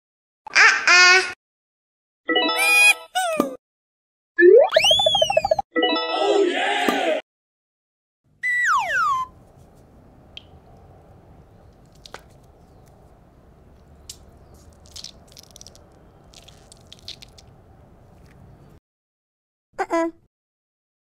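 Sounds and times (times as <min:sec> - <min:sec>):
stress ball squishing and crackling: 0:13.9 - 0:18.5.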